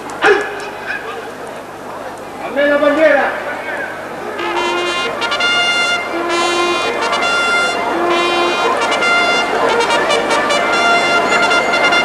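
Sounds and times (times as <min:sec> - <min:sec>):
military trumpet call: 0:03.4 - 0:12.0.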